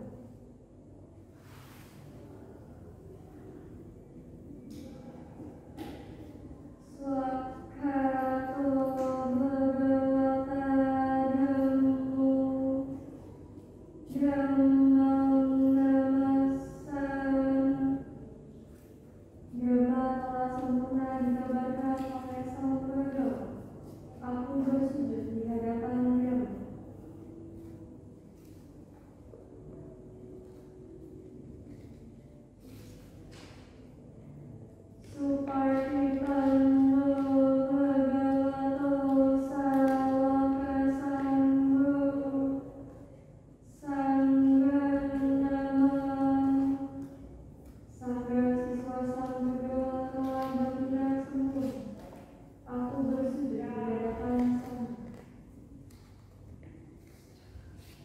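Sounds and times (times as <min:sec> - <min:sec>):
woman chanting: 0:06.8 - 0:13.3, 0:14.0 - 0:18.2, 0:19.5 - 0:27.0, 0:35.0 - 0:42.9, 0:43.6 - 0:47.0, 0:47.9 - 0:55.3.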